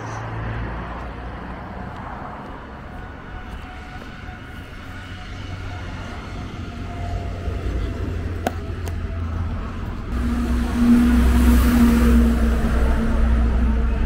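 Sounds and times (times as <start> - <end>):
large vehicle passing: 5.0 - 14.0
low outdoor rumble: 6.1 - 14.0.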